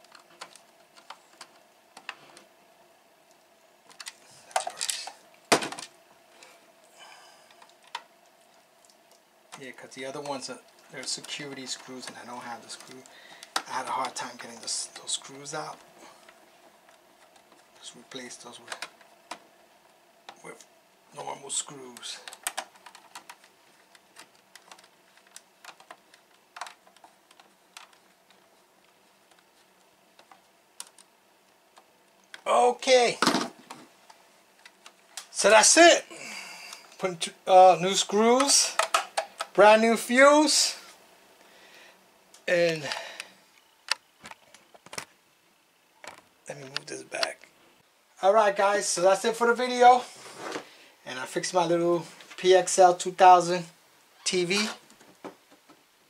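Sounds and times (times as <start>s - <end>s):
sharp plastic clack: 38.8s - 39.6s.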